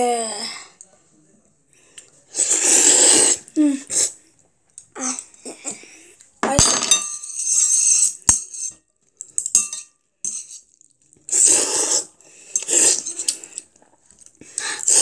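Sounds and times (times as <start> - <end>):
chopsticks clinking against ceramic bowl: 6.5 - 7.6, 9.4 - 10.6.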